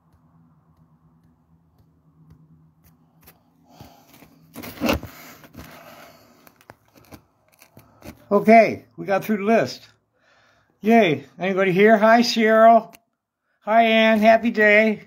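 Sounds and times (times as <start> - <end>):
faint low hum: 0.0 - 10.6
scraping and rustling handling noise: 2.8 - 8.3.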